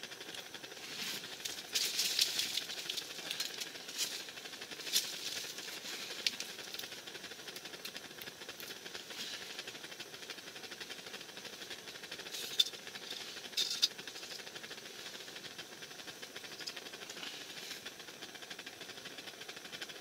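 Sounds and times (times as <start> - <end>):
crackling rustle: 0.3 - 9.7.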